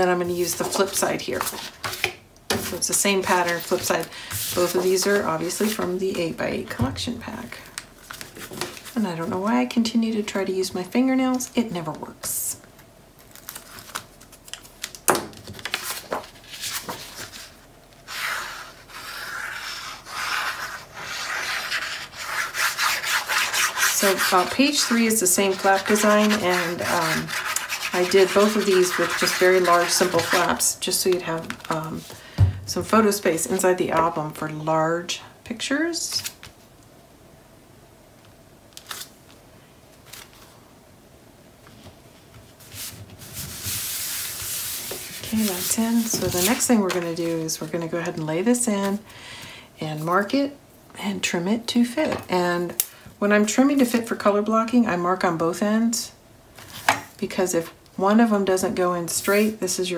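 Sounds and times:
faint room noise: 0.0 - 59.9
paper rustles: 13.2 - 17.6
paper rubbing on cardstock: 18.1 - 30.5.

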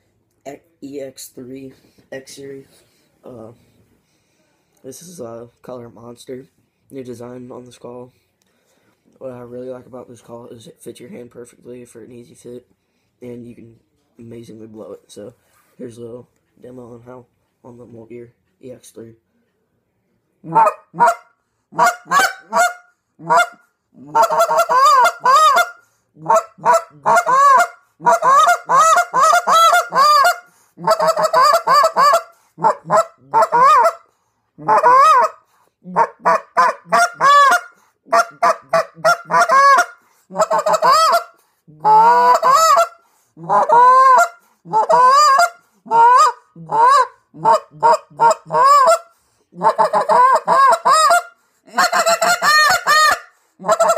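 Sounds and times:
goose call honks and clucks: 20.4 - 53.9.

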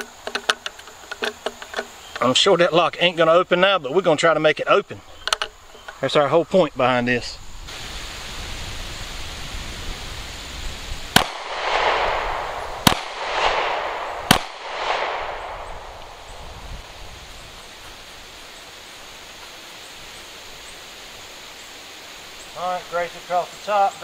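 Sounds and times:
pistol shots echoing: 11.1 - 16.3.

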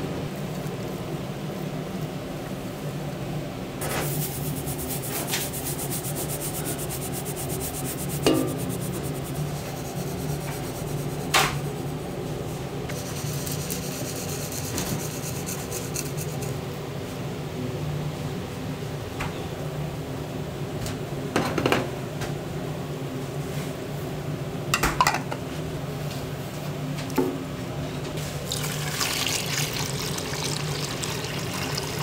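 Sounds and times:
rapid rubbing and scraping: 3.8 - 12.2.

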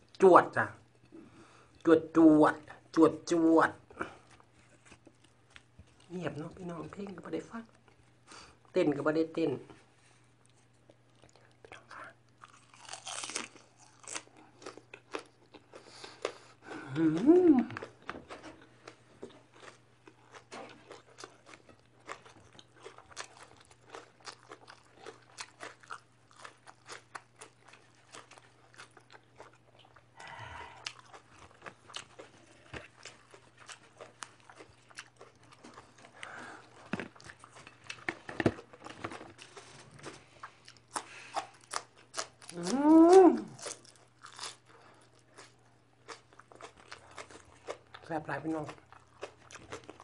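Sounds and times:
crunching and chewing vegetables: 0.0 - 8.8, 9.6 - 50.0
person humming: 16.7 - 17.8, 42.5 - 43.6.

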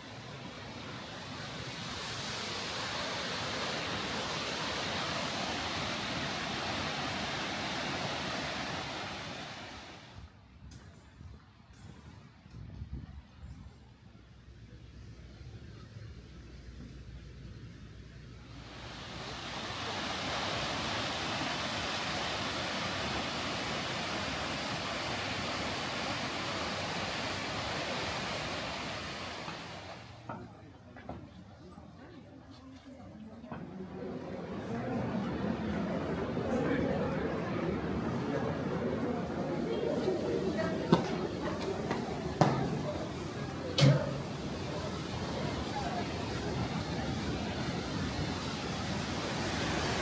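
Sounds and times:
waterfall rushing: 0.0 - 10.1, 18.6 - 30.1, 35.4 - 50.0.

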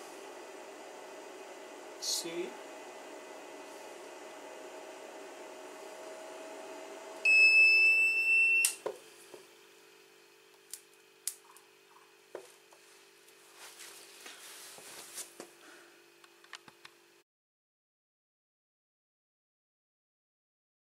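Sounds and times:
power inverter hum: 0.0 - 17.2
high alarm beep: 7.3 - 8.8.

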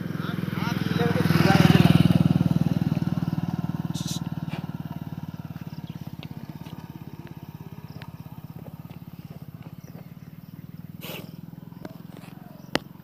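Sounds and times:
engine idling: 0.0 - 13.0
burst of hiss: 11.0 - 11.4.

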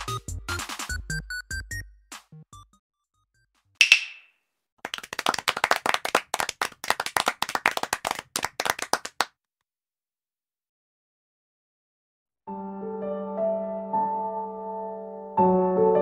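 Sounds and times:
sharp hit with ring: 3.8 - 4.3
hands clapping rapidly: 3.8 - 9.3.

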